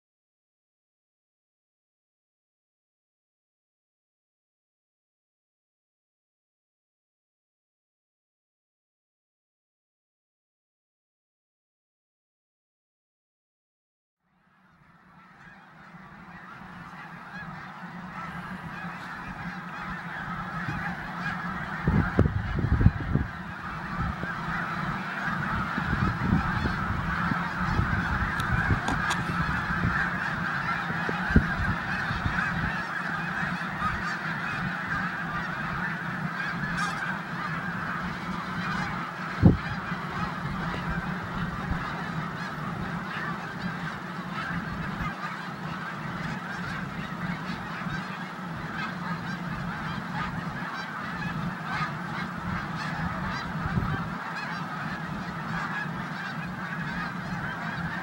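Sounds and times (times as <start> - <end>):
flock of geese honking: 14.4 - 58.0.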